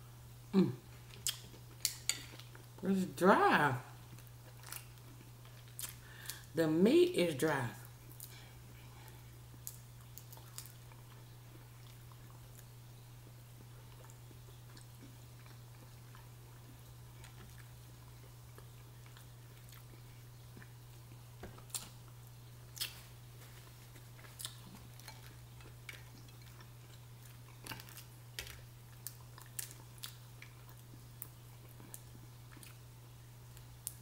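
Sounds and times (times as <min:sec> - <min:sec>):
low steady hum: 0:00.0 - 0:34.0
chewing: 0:08.1 - 0:12.7, 0:13.6 - 0:32.9
crawfish shells cracking: 0:24.3 - 0:32.1.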